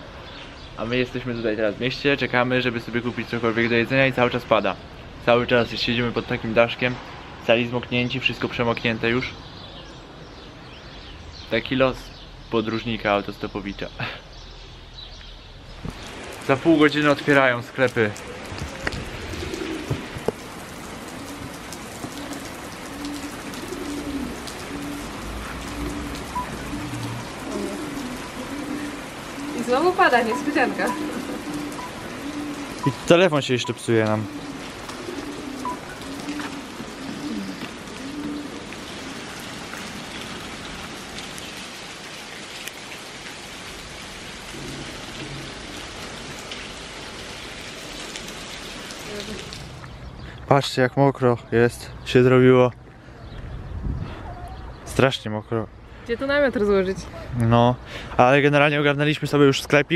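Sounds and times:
rain on wet street: 0.0 - 53.6, 54.8 - 59.9
pigeon cooing: 18.2 - 33.1, 34.2 - 39.4.

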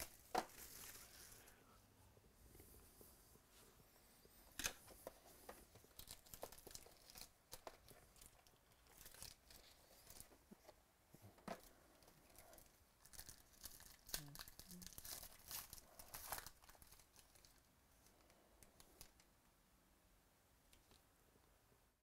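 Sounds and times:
cardboard and plastic crinkling: 0.0 - 1.5, 4.6 - 17.7.

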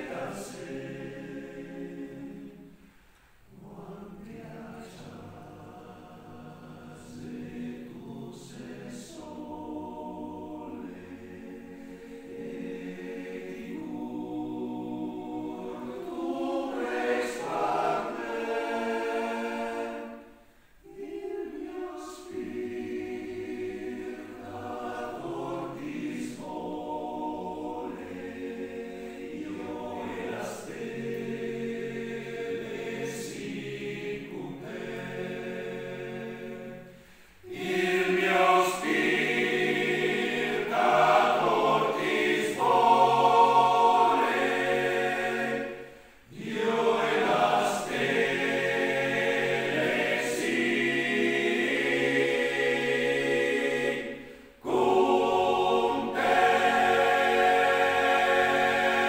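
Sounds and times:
men's choir singing a cappella: 0.0 - 59.0.

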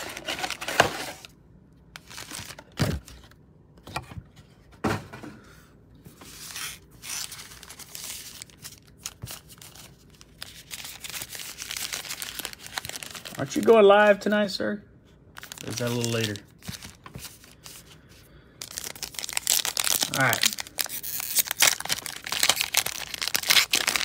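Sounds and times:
foil wrappers crinkling: 6.4 - 13.9, 15.4 - 24.0.

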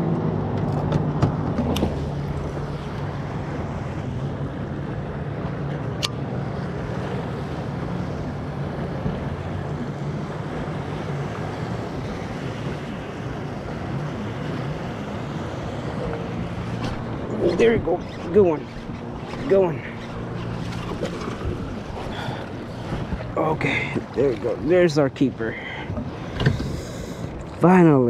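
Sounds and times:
water lapping against hull: 1.3 - 28.0
wind buffeting microphone: 7.7 - 28.0.

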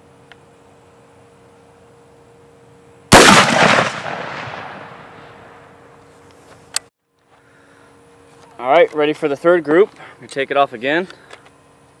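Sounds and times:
rifle shot: 3.1 - 5.7.

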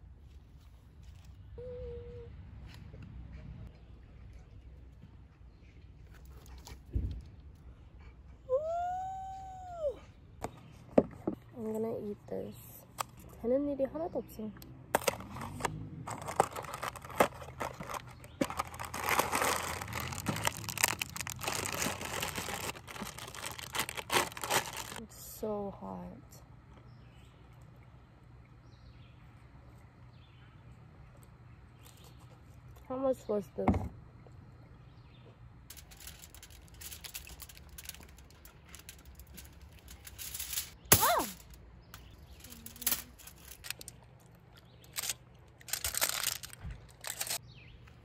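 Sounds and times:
low steady hum: 0.0 - 48.0
plastic packaging crinkling: 15.0 - 25.0, 35.7 - 41.4, 42.4 - 44.0, 44.8 - 47.4.

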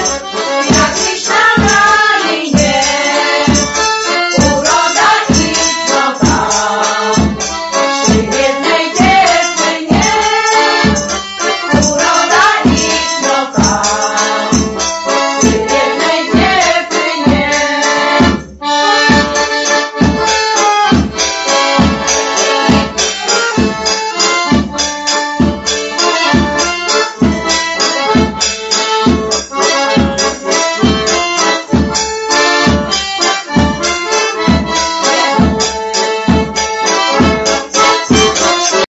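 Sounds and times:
voices singing: 0.0 - 18.4
accordion folk song: 0.0 - 38.9.

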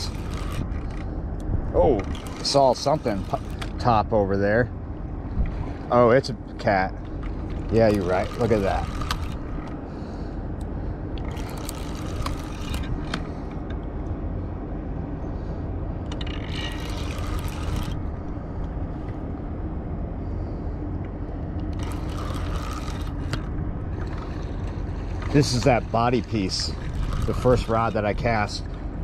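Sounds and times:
fish thrashing and splashing: 0.0 - 1.1, 11.2 - 12.8, 24.0 - 28.0
low engine rumble: 0.0 - 29.0.

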